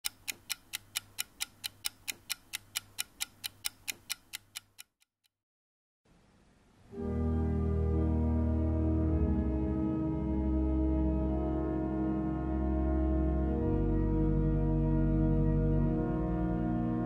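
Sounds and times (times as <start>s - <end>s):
rapid clock-like ticking: 0.0s - 5.1s
organ chord with deep bass: 7.0s - 17.0s.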